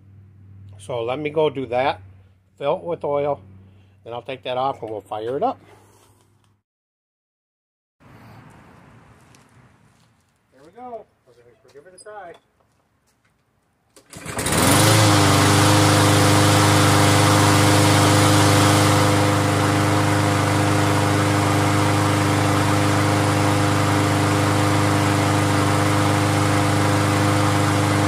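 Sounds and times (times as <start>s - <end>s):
lawn mower engine running: 14.0s - 28.0s.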